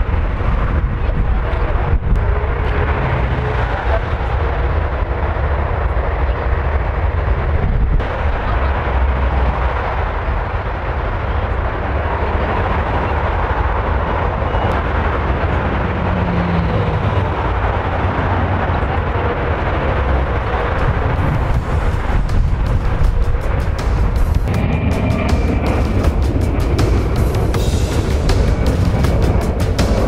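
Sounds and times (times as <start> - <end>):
jet engines rumbling: 0.0 - 30.0.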